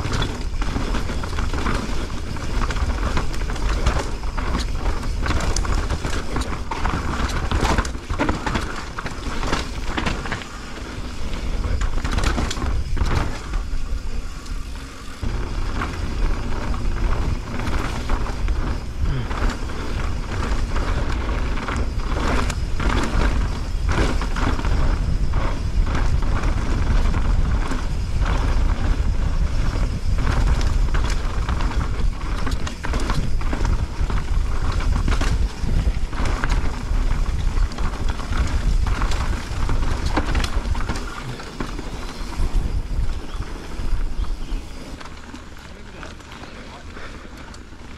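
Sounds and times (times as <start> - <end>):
bike knocking and rattling: 0.0 - 47.9
bike tyres rolling over dirt: 0.0 - 47.9
low rumble: 15.2 - 32.5.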